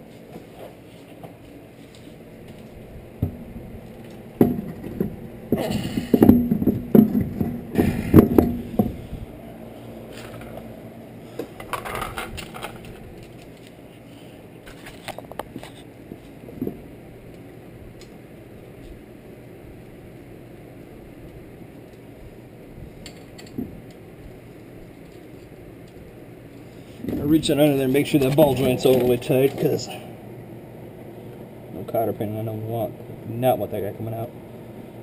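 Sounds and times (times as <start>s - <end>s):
metal parts clattering: 11.6s - 13.7s.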